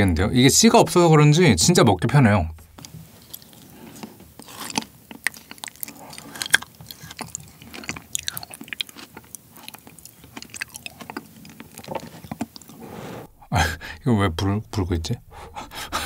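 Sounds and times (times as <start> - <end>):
mouth chewing wet clicks: 2.8 - 12.8.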